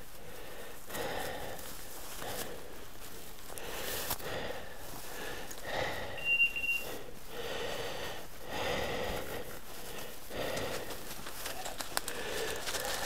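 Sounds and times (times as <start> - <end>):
short high beep: 6.2 - 6.9
footsteps crunching dry leaves: 6.8 - 13.0.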